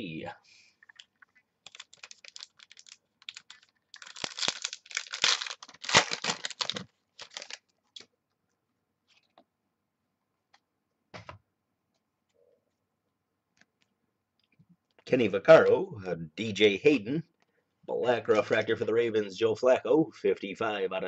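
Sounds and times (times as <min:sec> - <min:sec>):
foil wrapper tearing and crinkling: 0:01.6 - 0:07.7.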